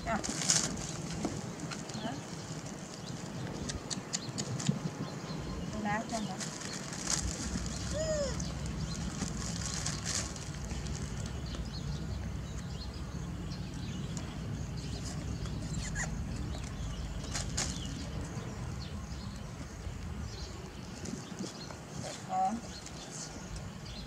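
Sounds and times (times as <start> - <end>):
wind rumble on microphone: 0.0 - 24.0
cardboard box and plastic rustling: 0.1 - 3.3, 6.3 - 11.4.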